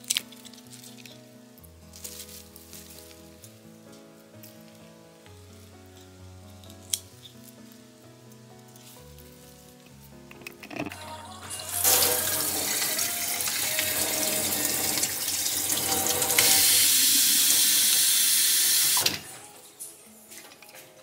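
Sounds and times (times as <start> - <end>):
faucet water filling glass vase: 11.6 - 19.2.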